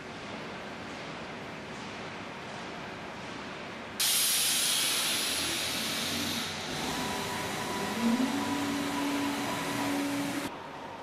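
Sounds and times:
loud air hiss: 0:04.0 - 0:10.5
motor whine: 0:05.7 - 0:10.5.

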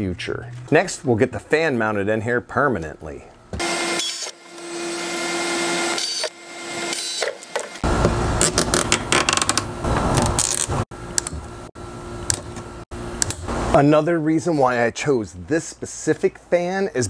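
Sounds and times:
cordless drill boring plastic: 0:03.6 - 0:07.8.

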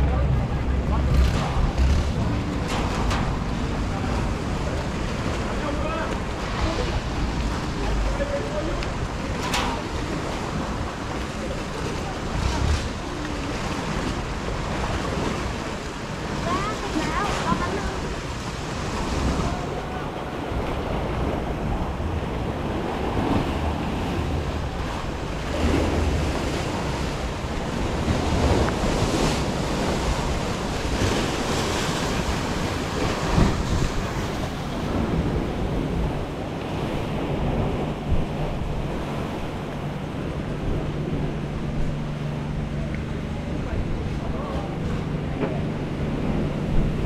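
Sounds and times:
steady low hum: 0:00.0 - 0:16.6
sea water splashing: 0:00.0 - 0:47.0
wind buffeting microphone: 0:00.0 - 0:47.0.

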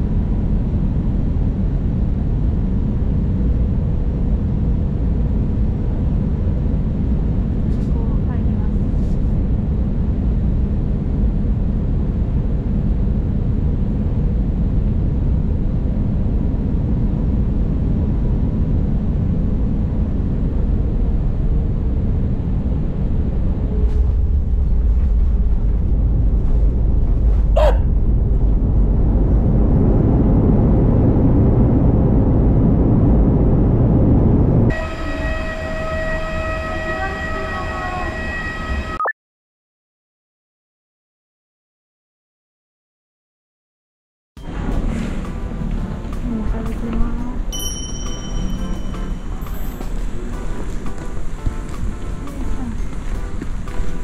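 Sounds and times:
jet engine cabin rumble: 0:00.0 - 0:35.0.

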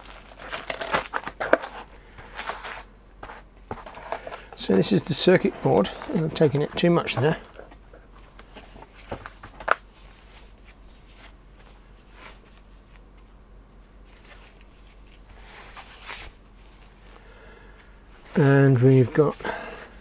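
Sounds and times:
paper sheets rustling: 0:00.0 - 0:13.1.

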